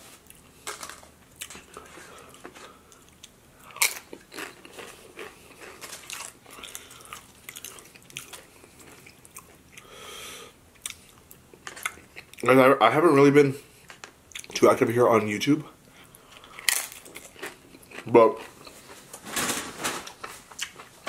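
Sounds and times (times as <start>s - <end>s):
crunching on chips: 0.3s - 9.9s, 16.2s - 19.2s
chewing food: 1.4s - 9.9s, 10.7s - 12.5s, 15.8s - 19.1s.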